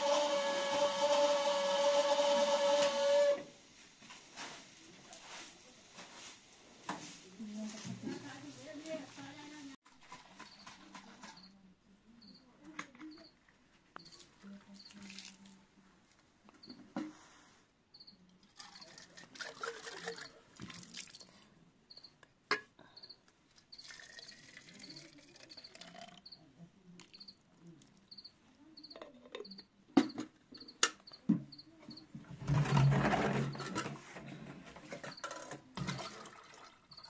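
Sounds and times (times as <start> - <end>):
crickets chirping: 12.2 - 12.4, 17.9 - 18.2, 21.9 - 22.1, 23.0 - 26.4, 28.0 - 29.7
water gurgling into plastic bottle: 18.5 - 21.3, 23.8 - 26.2, 35.8 - 37.0
rush of water from jerrycan: 18.6 - 21.3, 35.8 - 37.0.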